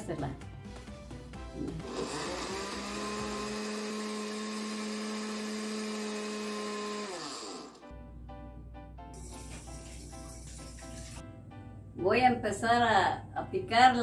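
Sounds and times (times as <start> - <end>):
blender motor running: 1.6 - 7.9.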